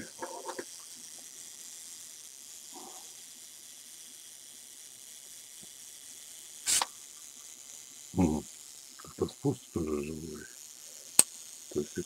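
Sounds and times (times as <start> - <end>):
faint steady hiss: 0.0 - 12.0
camera shutter click: 6.7 - 6.9.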